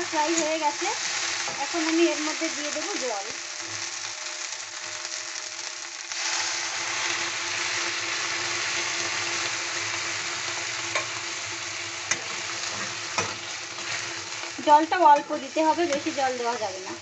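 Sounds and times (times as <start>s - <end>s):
okra sizzling in oil: 0.0s - 17.0s.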